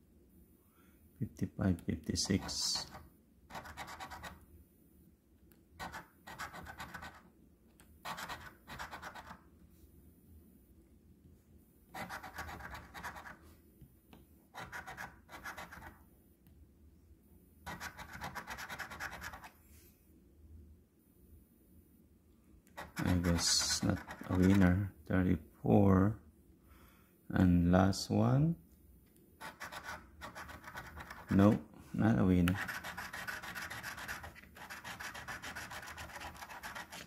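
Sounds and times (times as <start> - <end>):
coin scratching lottery ticket: 2.2 - 4.4, 5.8 - 7.3, 8.0 - 9.4, 11.9 - 13.4, 14.6 - 16.0, 17.7 - 19.5, 22.8 - 24.8, 29.4 - 31.6, 32.4 - 37.0.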